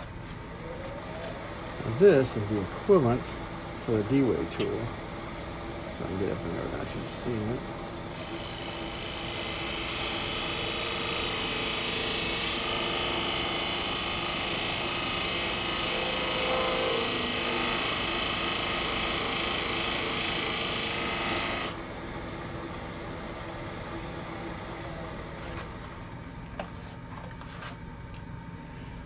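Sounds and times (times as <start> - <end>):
lathe humming: 0.1 - 25.8
cutter scraping spinning wood: 9.5 - 21.8.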